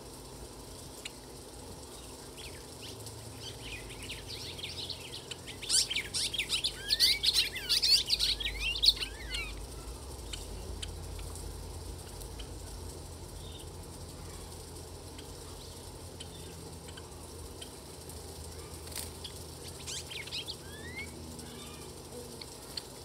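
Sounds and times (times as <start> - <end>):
sparrows chirping: 0.6 - 23.0.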